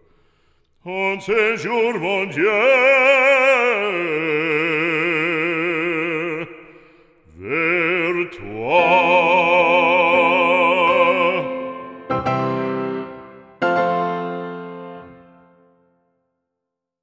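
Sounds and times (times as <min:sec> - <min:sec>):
person singing operatic hymn: 0:00.8 - 0:13.3.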